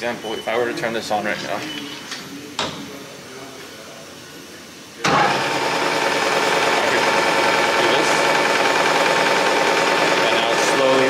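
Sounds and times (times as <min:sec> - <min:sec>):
metal lathe machine whine: 0:05.1 - 0:11.0.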